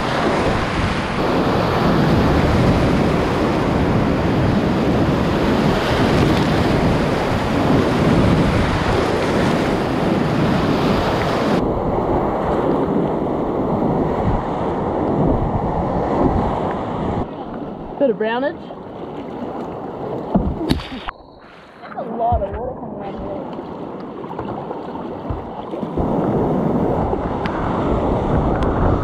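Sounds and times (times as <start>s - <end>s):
whitewater rushing and crashing: 0.0s - 12.9s, 18.8s - 29.0s
waves splashing over boat: 0.0s - 29.0s.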